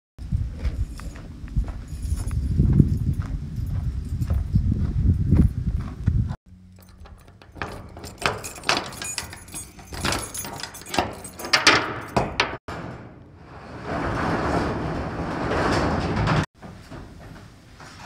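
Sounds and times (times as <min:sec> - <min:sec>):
padlock metal clicks and rattles: 0:06.6 - 0:12.6
steel roll-up door rattling: 0:06.6 - 0:18.0.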